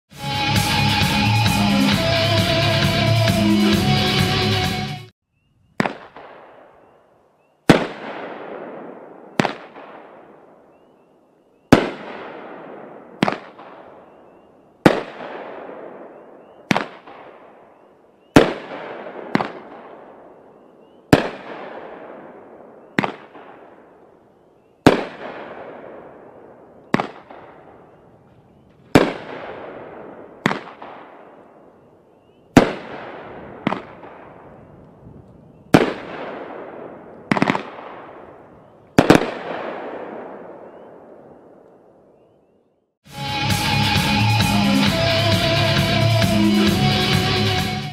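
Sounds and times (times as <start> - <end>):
firework bangs: 5.8 - 6.9, 7.6 - 10.8, 11.6 - 24.2, 24.8 - 28.2, 28.8 - 31.8, 32.5 - 41.9.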